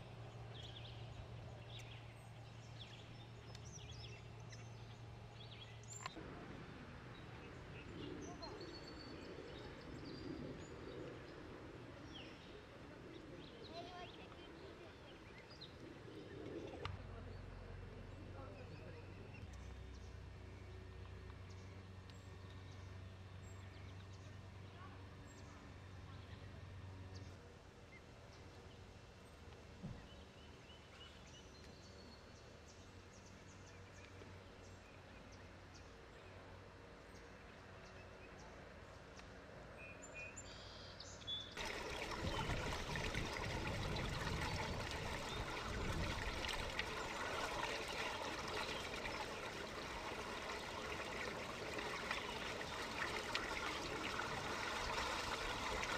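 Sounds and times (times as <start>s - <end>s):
rushing trickling water: 41.6s - 55.9s.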